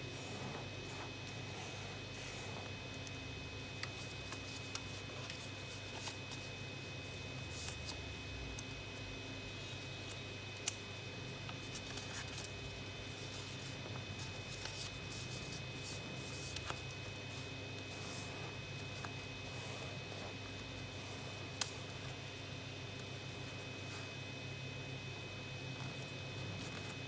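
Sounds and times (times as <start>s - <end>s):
steady low hum: 0.0s - 27.0s
paper rustling and crinkling: 11.5s - 22.2s.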